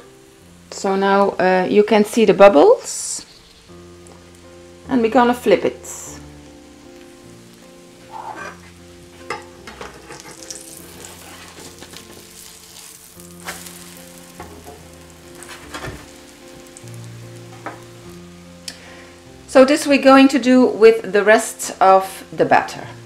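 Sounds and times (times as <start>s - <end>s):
batter sizzling in a skillet: 0.1s - 23.0s
metal spatula scraping a pan: 8.1s - 16.1s.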